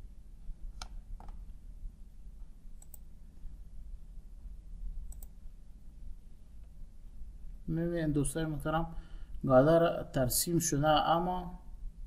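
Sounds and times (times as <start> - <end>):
faint room hum: 0.0 - 12.0
computer mouse clicking: 0.7 - 1.5, 2.8 - 3.1, 5.1 - 5.4.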